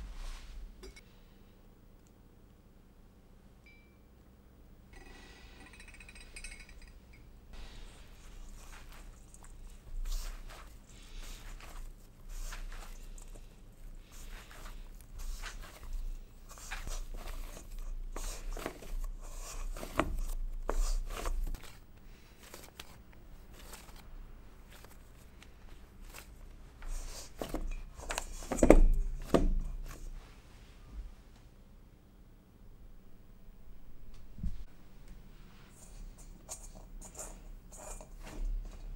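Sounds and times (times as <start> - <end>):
hands kneading sticky dough: 7.6 - 30.3.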